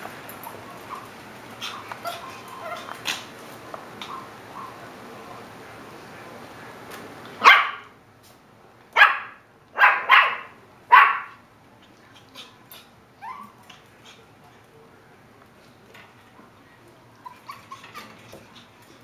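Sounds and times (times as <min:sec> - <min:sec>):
dog barking: 0:07.4 - 0:07.9, 0:09.0 - 0:11.4.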